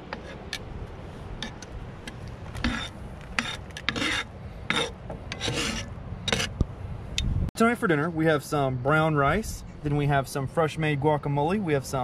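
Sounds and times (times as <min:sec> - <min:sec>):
metal tongs scraping skillet: 0:00.0 - 0:00.6, 0:01.4 - 0:06.6.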